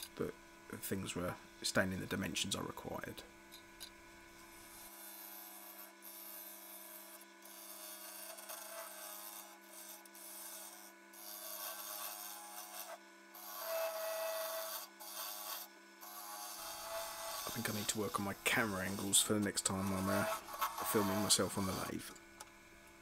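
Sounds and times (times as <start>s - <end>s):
gouge scraping spinning wood: 7.5s - 22.2s
lathe motor hum: 11.2s - 22.7s.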